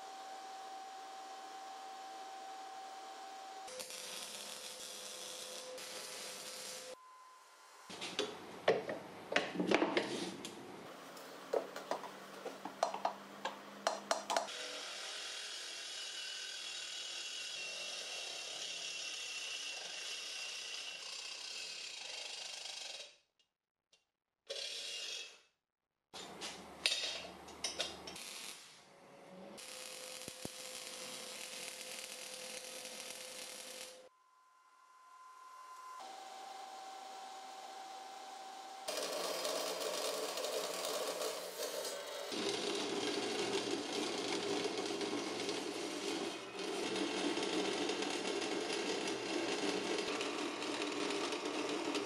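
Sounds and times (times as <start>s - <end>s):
welding hiss and crackle: 3.7s - 7.0s, 28.1s - 28.9s, 29.6s - 34.1s
reciprocating saw cutting steel: 14.5s - 23.2s.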